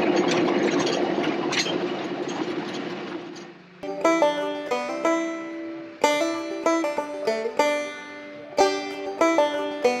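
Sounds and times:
plucked string instrument music: 3.8 - 10.0.

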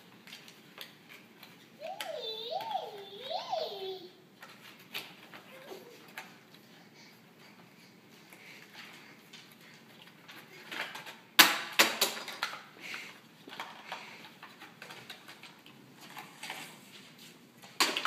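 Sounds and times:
plastic toy clicks and rustles: 0.1 - 3.8, 8.8 - 16.8.

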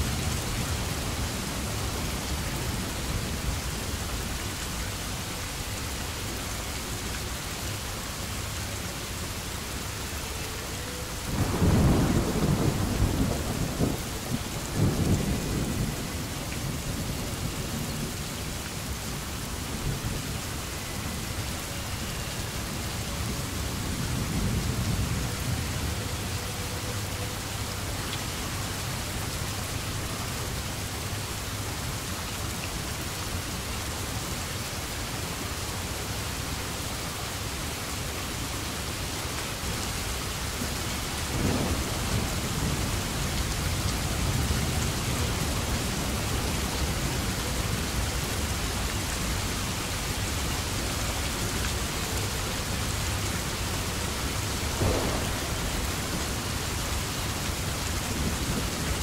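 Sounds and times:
steady rain: 0.0 - 59.0
low rolls of thunder: 11.2 - 18.6, 41.2 - 47.6, 54.3 - 59.0.

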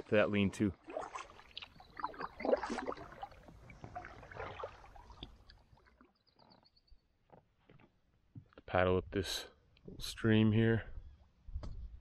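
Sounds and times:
canoe paddles splashing in water: 0.7 - 6.2.

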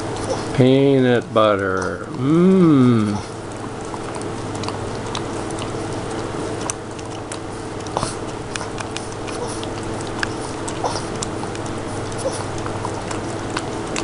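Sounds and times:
dog licking: 0.0 - 14.0
small smacking clicks: 3.5 - 14.0.

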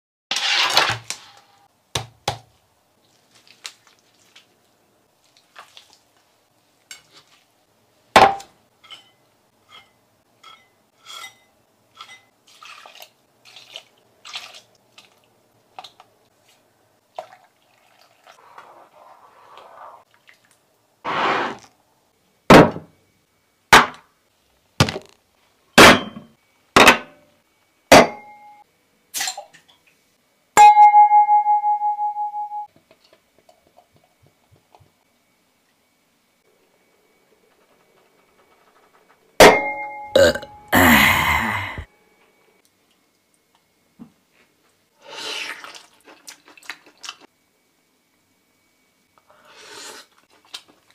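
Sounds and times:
dishes and glassware clinking: 8.2 - 12.3.

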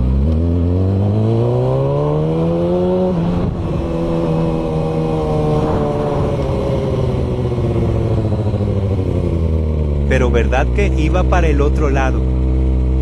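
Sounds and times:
motorcycle engine accelerating: 0.0 - 13.0.

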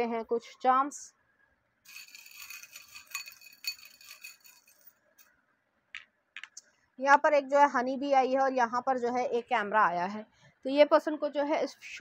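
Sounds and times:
metal charms jingling: 1.9 - 4.9.

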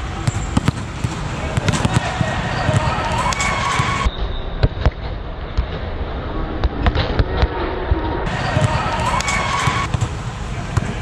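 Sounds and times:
volleyball slaps and thuds: 0.1 - 5.8.

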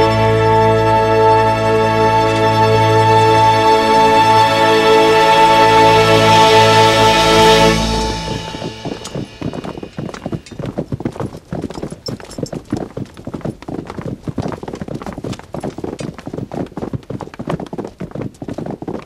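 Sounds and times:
people walking: 6.9 - 19.0
hooves clip-clopping on stone: 8.1 - 19.0.

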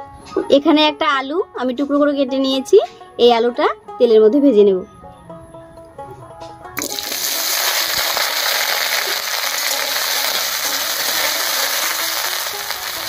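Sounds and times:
potatoes sizzling in hot oil: 6.8 - 13.0.

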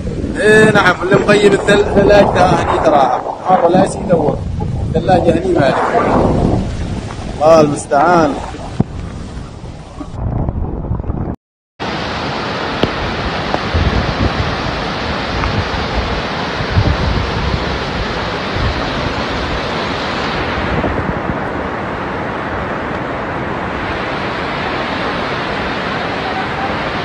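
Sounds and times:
wind buffeting microphone: 0.0 - 11.4, 12.8 - 22.7
floodwater rushing: 0.0 - 27.0.

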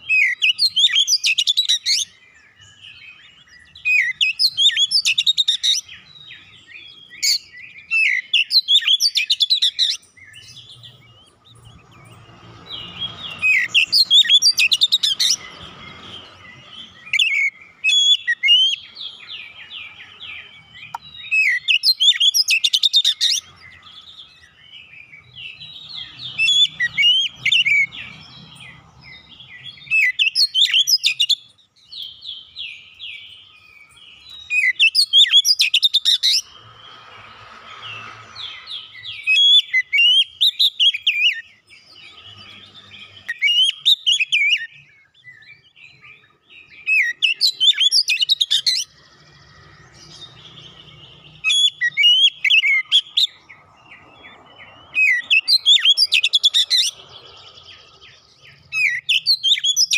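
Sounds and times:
bird singing whistled phrases: 0.0 - 11.2, 16.8 - 23.5, 29.5 - 36.5, 37.9 - 49.0, 50.9 - 53.4, 54.9 - 57.0, 58.4 - 59.9.

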